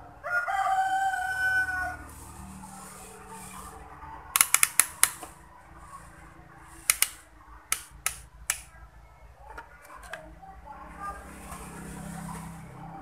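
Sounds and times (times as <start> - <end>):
hand tools clicking and snapping: 4.4 - 5.3, 6.9 - 8.7.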